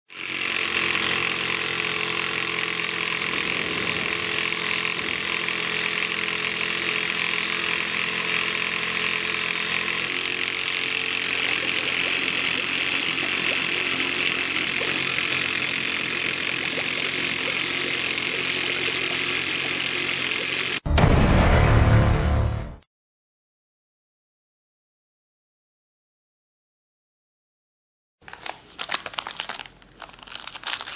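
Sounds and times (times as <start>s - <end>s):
small motor mechanical whir: 0.1s - 20.8s.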